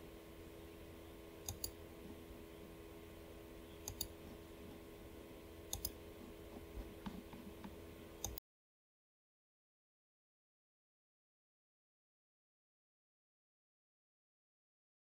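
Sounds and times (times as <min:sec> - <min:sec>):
low background hum: 0:00.0 - 0:08.4
computer mouse clicks: 0:01.4 - 0:01.8, 0:03.8 - 0:04.4, 0:05.7 - 0:06.0, 0:06.6 - 0:08.4.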